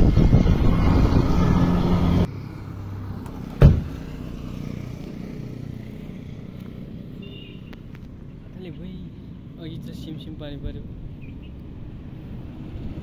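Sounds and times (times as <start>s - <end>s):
roadside background noise: 0.0s - 13.0s
sharp knock: 3.6s - 4.0s.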